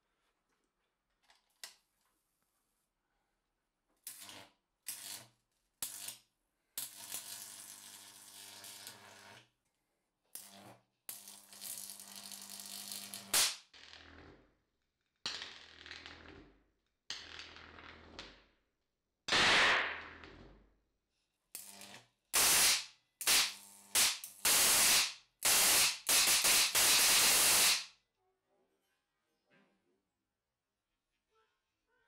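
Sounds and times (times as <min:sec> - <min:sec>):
electric arc buzzing and hissing: 0:11.3 - 0:13.6, 0:21.6 - 0:27.9
sharp electric crack: 0:19.3 - 0:20.1, 0:22.4 - 0:27.9.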